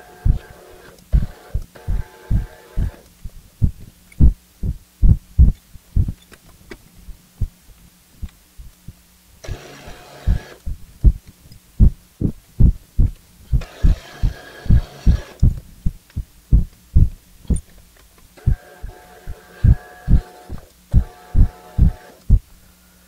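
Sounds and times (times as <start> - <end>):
low thumping: 3.6 - 6.2, 11.8 - 13.6, 15.4 - 17.2.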